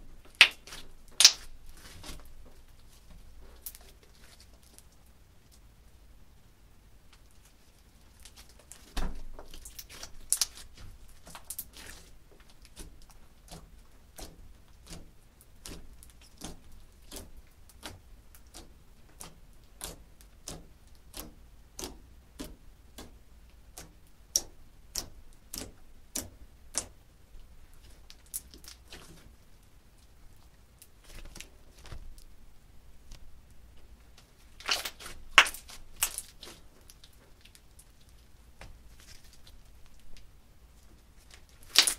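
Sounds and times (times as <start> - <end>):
slime clicking and popping: 0.3 - 1.5, 9.5 - 27.0, 34.5 - 37.9, 41.3 - 41.9.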